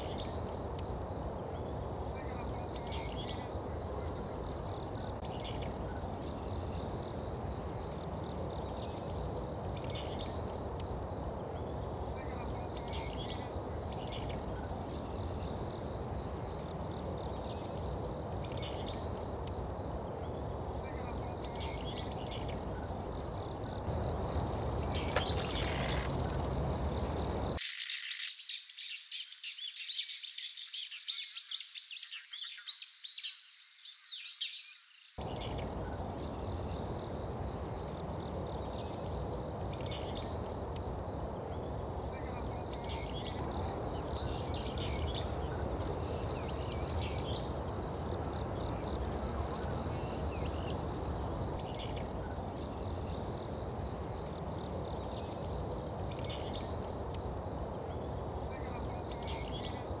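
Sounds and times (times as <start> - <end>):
low background noise: 0.0 - 32.0, 34.8 - 60.0
small-bird chirps: 12.2 - 15.6, 24.8 - 33.2, 57.5 - 59.9.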